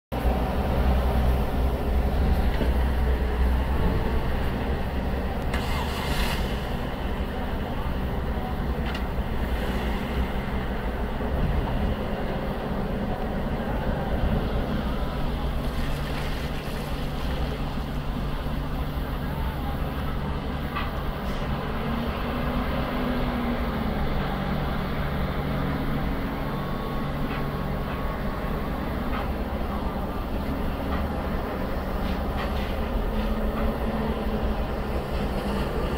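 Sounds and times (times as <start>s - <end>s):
lorry engines rumbling: 0.1s - 35.9s
brief hiss: 5.5s - 6.8s.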